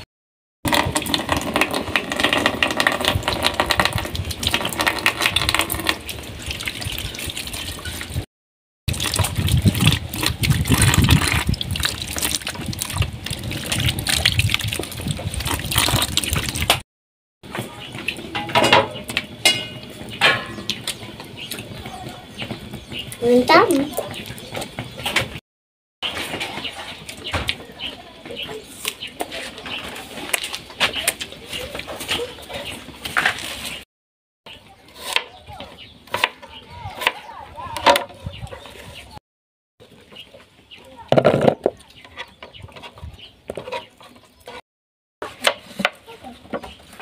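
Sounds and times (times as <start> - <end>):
tap water running into bucket: 0.7 - 8.2, 8.9 - 16.8
hands splashing water: 3.1 - 8.3, 8.9 - 16.8.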